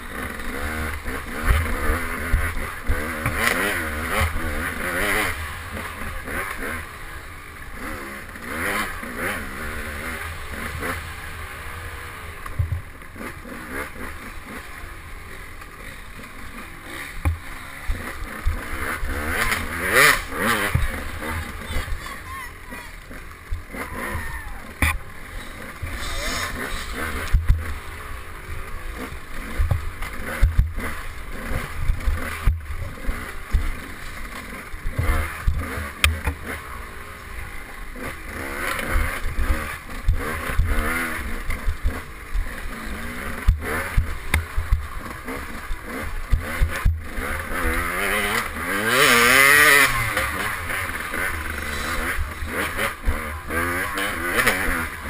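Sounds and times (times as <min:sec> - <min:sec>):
dirt bike engine revving: 0:00.0 - 0:55.0
bike knocks and clatters: 0:29.6 - 0:30.9, 0:34.9 - 0:36.5.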